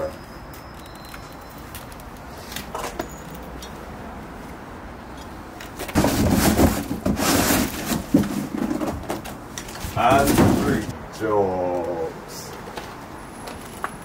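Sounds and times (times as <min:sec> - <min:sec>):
cardboard box scraping and rustling: 0:06.0 - 0:10.9.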